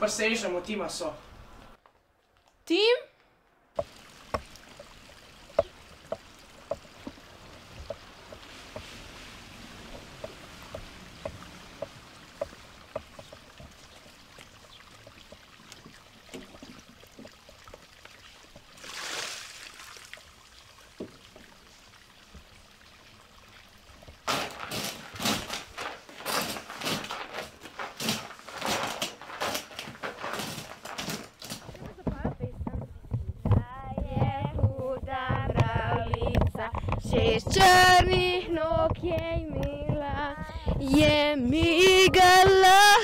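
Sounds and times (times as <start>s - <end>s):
water pouring splash: 3.8s - 31.7s
creek water trickling: 3.8s - 43.0s.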